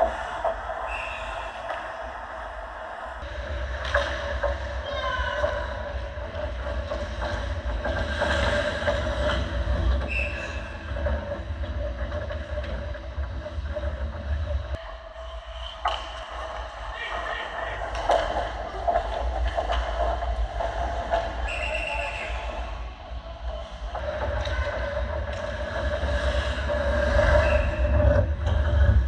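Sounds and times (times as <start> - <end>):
rink hum and rumble: 0.0 - 29.0.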